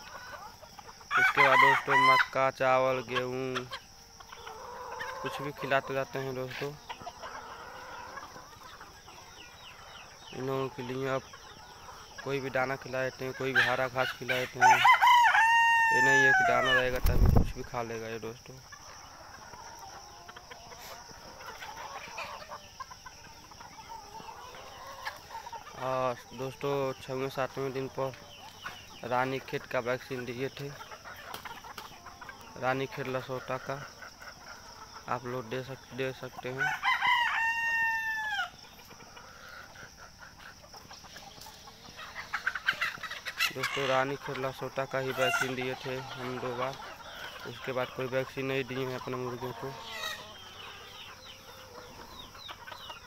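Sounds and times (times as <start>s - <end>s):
chickens clucking: 0.0s - 53.0s
rooster crowing: 1.0s - 2.4s, 14.4s - 17.0s, 36.4s - 38.6s.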